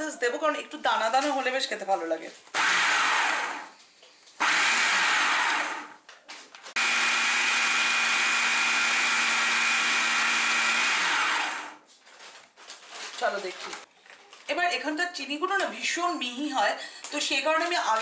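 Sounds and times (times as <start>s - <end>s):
food processor motor whine: 2.6s - 3.8s, 4.4s - 6.0s, 6.8s - 11.8s.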